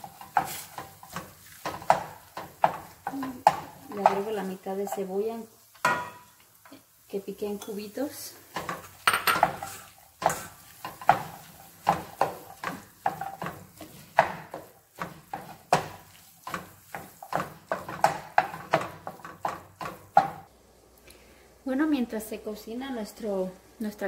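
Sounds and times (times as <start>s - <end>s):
spatula scraping a steel pan: 0.0s - 1.8s.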